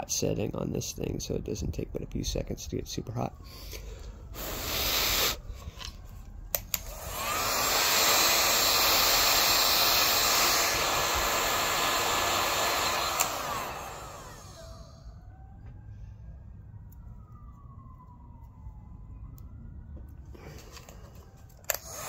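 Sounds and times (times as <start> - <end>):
heat gun blowing air: 4.4 - 5.5, 6.6 - 15.0, 21.7 - 22.0
heat gun switch click: 13.1 - 13.5.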